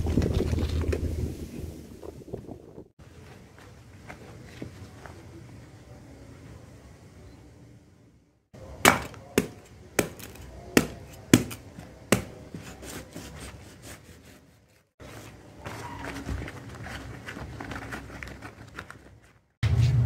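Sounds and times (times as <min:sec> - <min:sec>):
knife chopping fruit: 0:08.6 - 0:14.5.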